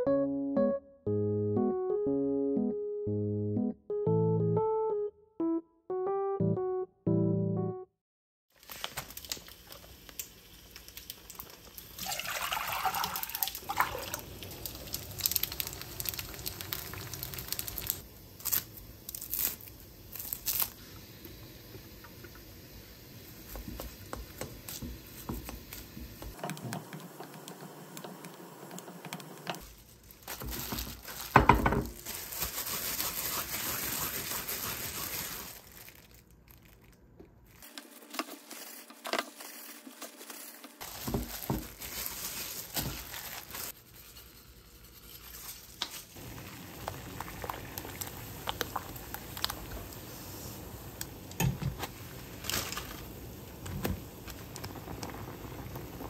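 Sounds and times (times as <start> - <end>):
rice and seaweed crinkling: 8.5 - 20.8, 29.6 - 44.0, 45.2 - 50.1, 51.8 - 56.0
noodles bubbling in sauce: 9.1 - 18.1, 46.2 - 56.0.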